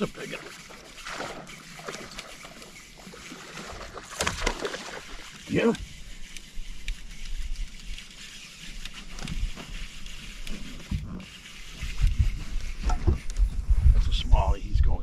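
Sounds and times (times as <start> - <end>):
water sloshing: 0.0 - 13.3
thumps and knocks around boat: 12.0 - 13.5.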